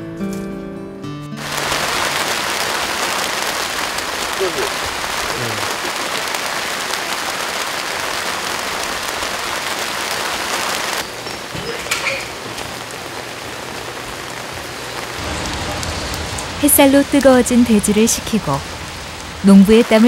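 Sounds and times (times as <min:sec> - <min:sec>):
steady rain falling: 0:01.4 - 0:20.0
water drips: 0:14.9 - 0:20.0.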